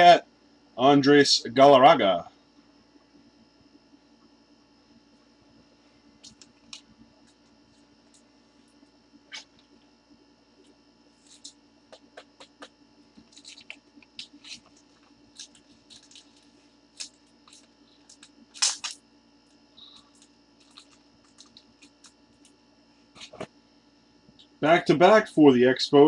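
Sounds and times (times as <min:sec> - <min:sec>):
faint steady hum: 0:00.0 - 0:26.0
cards and wrappers crinkling: 0:11.2 - 0:19.0, 0:19.9 - 0:22.6.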